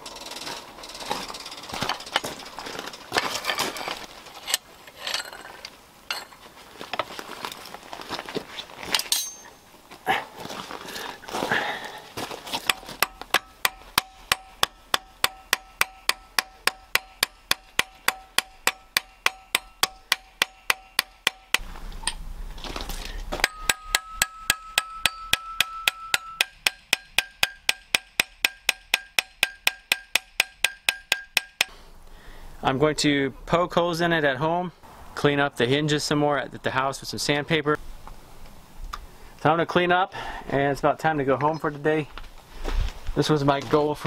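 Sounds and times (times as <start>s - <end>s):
hammer ringing on steel: 12.7s - 21.6s, 23.4s - 31.8s.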